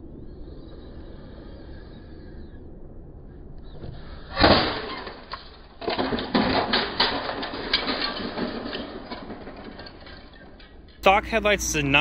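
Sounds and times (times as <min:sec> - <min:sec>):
plastic taillight smashing on concrete: 0:04.3 - 0:10.9
plastic pieces clattering on concrete: 0:04.4 - 0:11.0.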